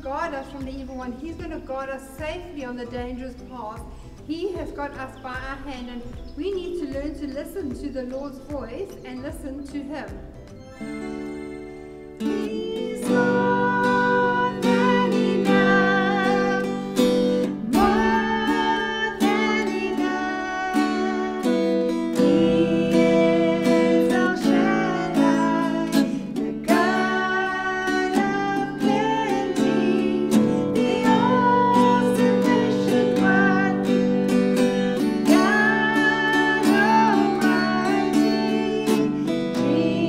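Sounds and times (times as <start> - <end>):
acoustic guitar strummed: 9.2 - 40.0
women singing worship song: 12.2 - 34.3, 35.2 - 40.0.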